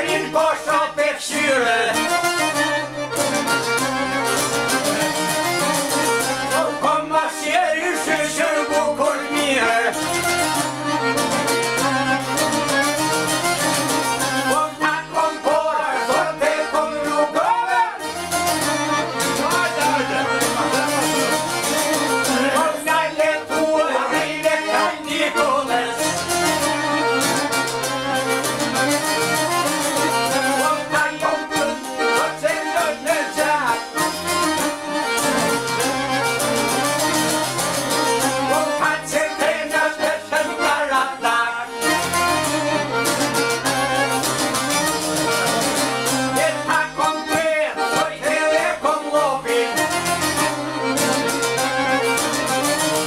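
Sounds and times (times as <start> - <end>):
men singing: 0.0 - 2.4, 6.4 - 10.3, 14.3 - 18.1, 19.2 - 26.5, 30.3 - 34.0, 38.2 - 42.1, 46.2 - 50.6
accordion: 0.0 - 53.0
plucked lutes: 0.0 - 53.0
violin: 0.0 - 53.0.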